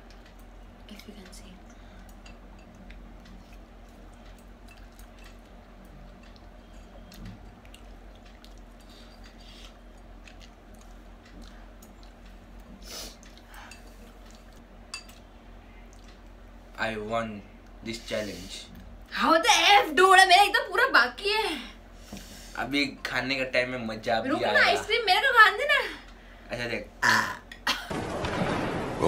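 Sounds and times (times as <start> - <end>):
low steady hum: 0.0 - 29.0
chewing and slurping noodles: 2.7 - 15.2.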